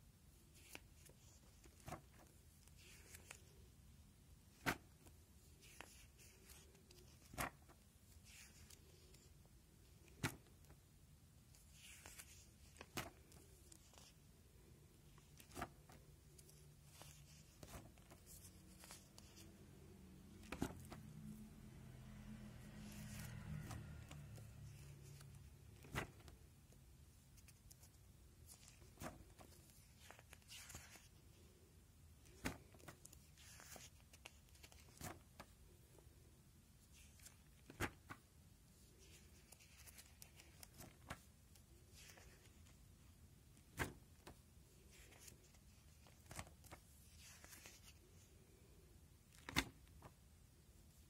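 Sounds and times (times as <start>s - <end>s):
plastic pages crinkling: 0.5s - 3.6s, 22.6s - 26.4s, 27.2s - 31.4s, 32.2s - 35.5s, 38.8s - 42.8s, 43.6s - 48.0s.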